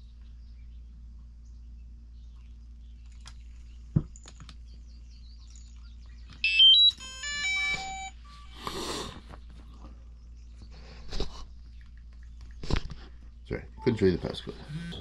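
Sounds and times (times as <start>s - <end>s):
electronic startup tune of beeps: 6.4s - 8.6s, 13.8s - 15.0s.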